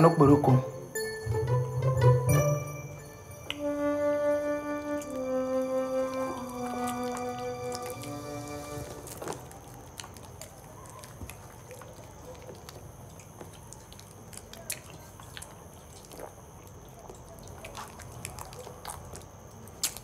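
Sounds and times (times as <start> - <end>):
wet mouth smacks and licking: 9.1 - 20.0.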